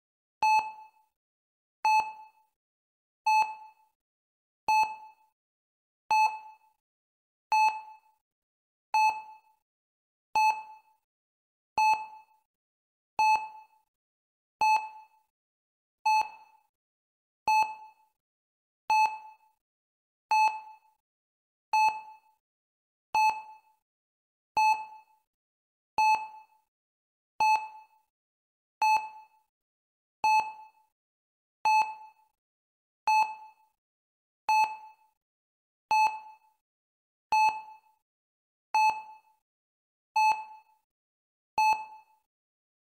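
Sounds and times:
heart rate monitor beeping: 0:00.4 - 0:00.8, 0:01.8 - 0:02.2, 0:03.3 - 0:03.7, 0:06.1 - 0:06.5, 0:07.5 - 0:07.9, 0:09.0 - 0:09.3, 0:10.4 - 0:10.9, 0:11.8 - 0:12.4, 0:13.2 - 0:13.8, 0:14.6 - 0:15.0, 0:16.0 - 0:16.5, 0:17.5 - 0:18.0, 0:18.9 - 0:19.2, 0:20.3 - 0:20.9, 0:21.7 - 0:22.1, 0:23.2 - 0:23.6, 0:24.6 - 0:25.0, 0:26.0 - 0:26.4, 0:27.4 - 0:27.8, 0:28.8 - 0:29.4, 0:30.2 - 0:30.8, 0:31.6 - 0:32.1, 0:33.1 - 0:33.6, 0:34.5 - 0:35.1, 0:35.9 - 0:36.4, 0:37.3 - 0:37.7, 0:38.8 - 0:39.2, 0:40.2 - 0:40.7, 0:41.6 - 0:42.1.

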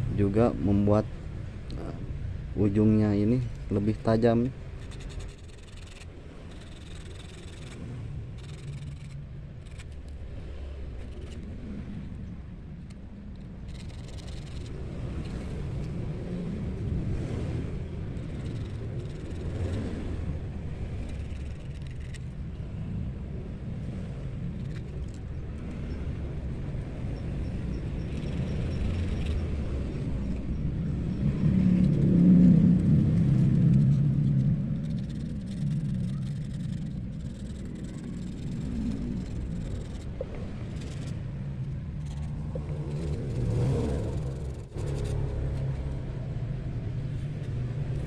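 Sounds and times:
steady low rumble: 0:00.0 - 0:48.0
hook scratching on sandpaper: 0:02.7 - 0:10.1, 0:12.9 - 0:15.9, 0:18.1 - 0:19.9, 0:21.0 - 0:22.4, 0:28.0 - 0:29.5, 0:33.2 - 0:46.0.

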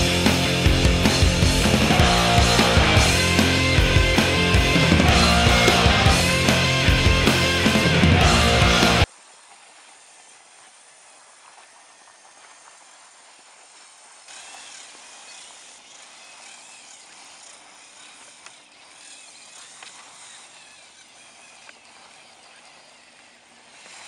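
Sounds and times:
steady outdoor hiss: 0:00.0 - 0:24.0
toy electric motor whine: 0:09.7 - 0:24.0
small clicks: 0:14.2 - 0:24.0.

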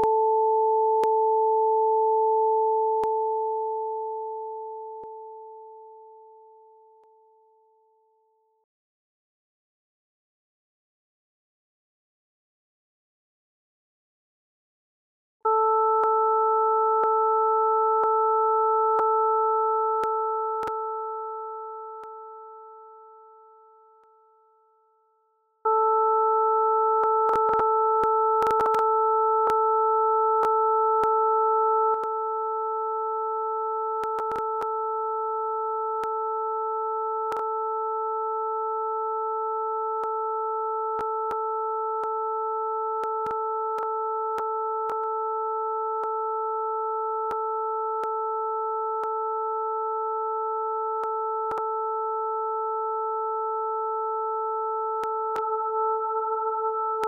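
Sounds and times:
steady sine tones: 0:25.7 - 0:57.0.

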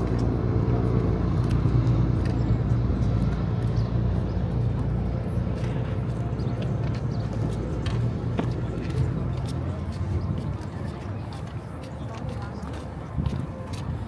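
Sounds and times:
vehicle engine humming: 0:00.0 - 0:14.0.

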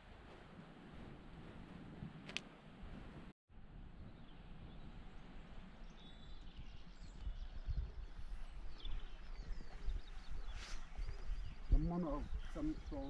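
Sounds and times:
wind buffeting microphone: 0:00.0 - 0:13.0
small birds chirping: 0:04.0 - 0:13.0.

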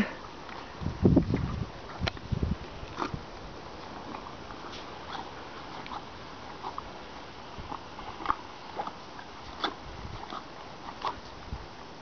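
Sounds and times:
horse chewing feed: 0:00.2 - 0:12.0.

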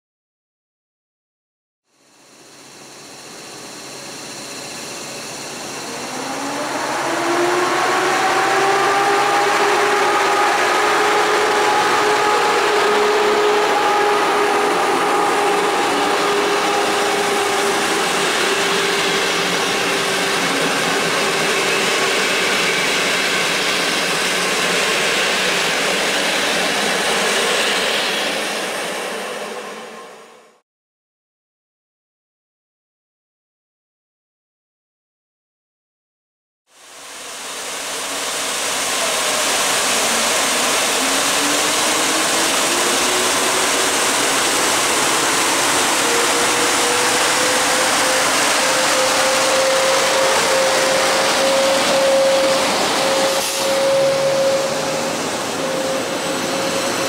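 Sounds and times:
locomotive whine: 0:02.1 - 0:30.6, 0:36.8 - 0:57.0
train wheels rumbling on rails: 0:02.8 - 0:30.5, 0:37.3 - 0:57.0.

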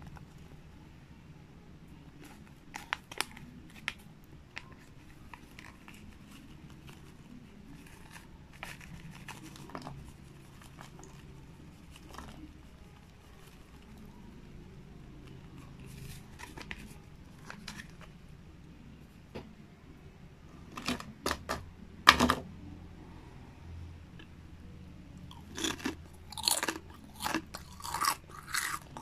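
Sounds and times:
plastic bag crinkling: 0:02.2 - 0:14.1, 0:15.8 - 0:18.1.

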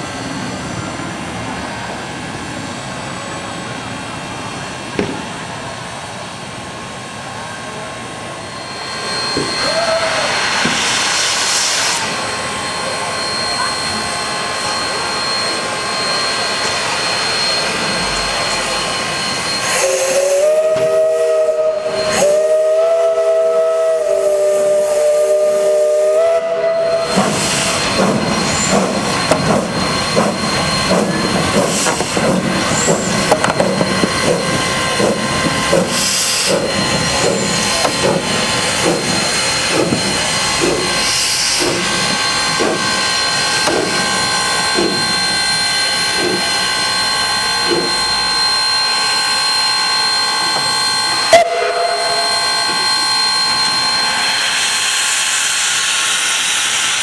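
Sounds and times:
steam hissing: 0:07.6 - 0:57.0
steam whistle chord: 0:12.8 - 0:29.0, 0:40.8 - 0:56.7.

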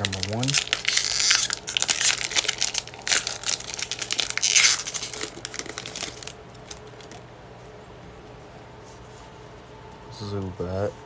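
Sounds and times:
foil wrapper tearing and crinkling: 0:00.0 - 0:07.2.

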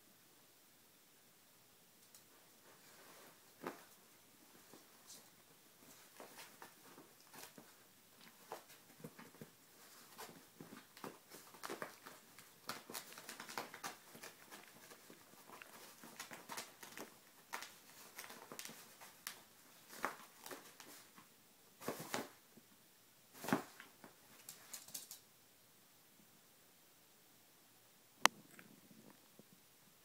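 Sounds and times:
fabric rustling: 0:02.3 - 0:22.4, 0:23.3 - 0:24.9
paws scrabbling: 0:02.7 - 0:21.2.

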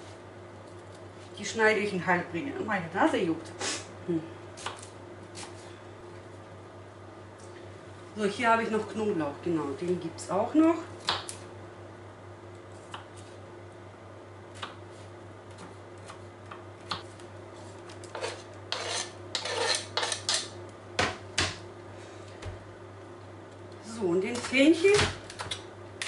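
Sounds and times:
knife scraping cutting board: 0:17.6 - 0:20.5.

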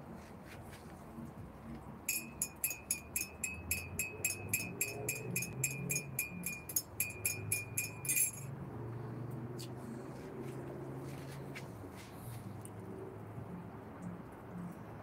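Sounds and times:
sharp chinking clicks: 0:02.1 - 0:08.5.

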